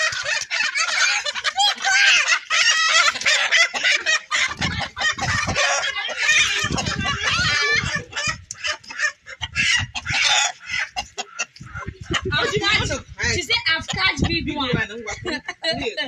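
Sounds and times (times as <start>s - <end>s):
chickens squawking and clucking: 0.0s - 16.0s.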